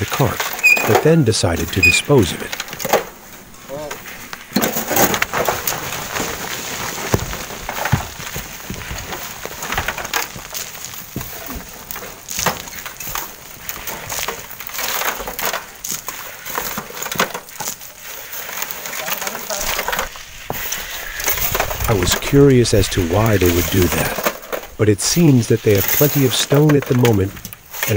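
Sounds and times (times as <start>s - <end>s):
voices talking: 0.0s - 6.4s, 18.3s - 27.9s
crunching of sand and gravel: 0.0s - 27.9s.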